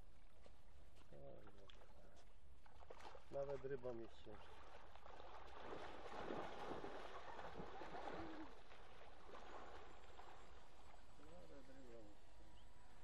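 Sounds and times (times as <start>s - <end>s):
dog splashing through water: 4.3s - 10.6s.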